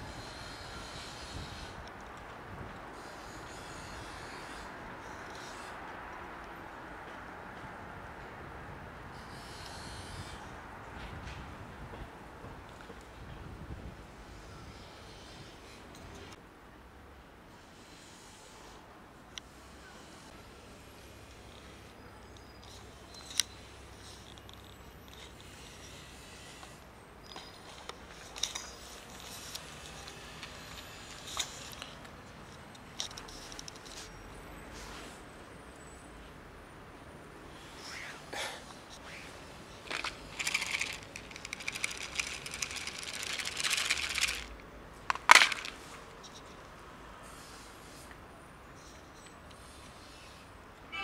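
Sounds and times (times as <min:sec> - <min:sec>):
low background noise: 0:00.0 - 0:51.0
sharp clicks: 0:39.9 - 0:45.7
cats crunching dry kibble: 0:39.9 - 0:45.8.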